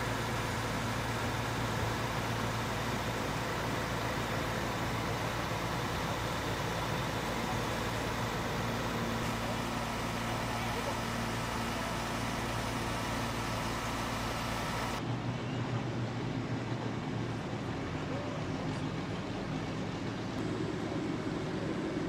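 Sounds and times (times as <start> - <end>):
engine humming: 0.0 - 15.0
outdoor noise: 0.0 - 22.0.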